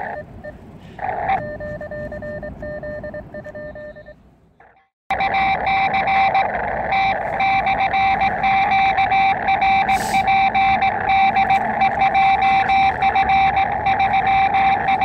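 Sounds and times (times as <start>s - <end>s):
morse code tone: 0.0s - 4.2s, 5.1s - 15.0s
radio band noise hiss: 5.4s - 15.0s.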